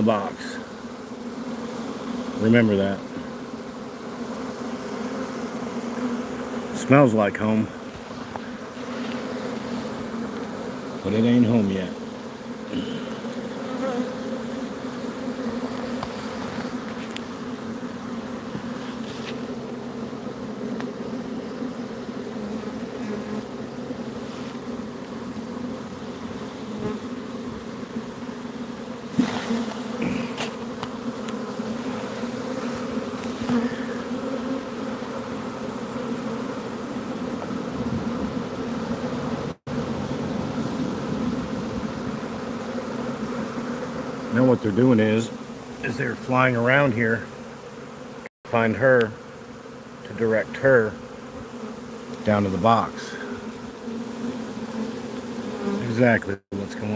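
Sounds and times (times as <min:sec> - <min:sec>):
bees buzzing: 0:00.0 - 0:56.9.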